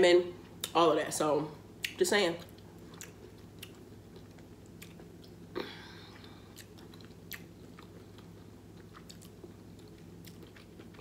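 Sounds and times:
low steady hum: 0.0 - 11.0
chewing and mouth clicks: 1.8 - 5.4, 6.2 - 11.0.

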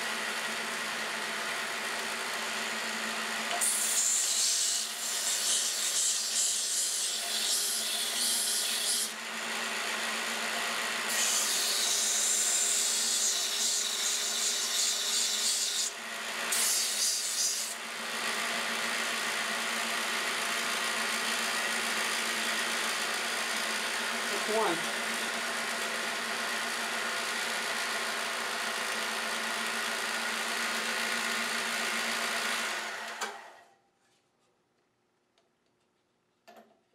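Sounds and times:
power sander motor running: 9.1 - 11.1, 17.8 - 33.2.

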